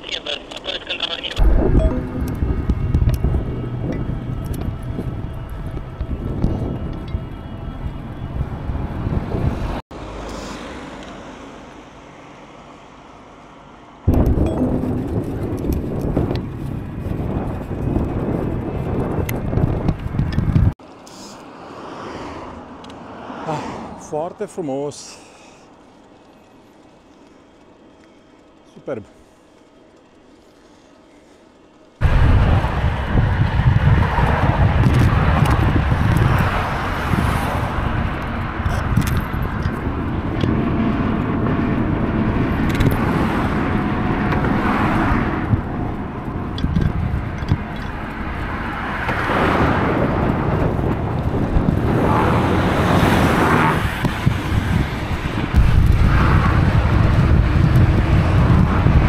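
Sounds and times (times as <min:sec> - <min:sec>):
road noise: 0:00.0 - 0:59.0
wind rumbling on microphone: 0:01.4 - 0:09.8, 0:14.1 - 0:20.8, 0:32.0 - 0:59.0.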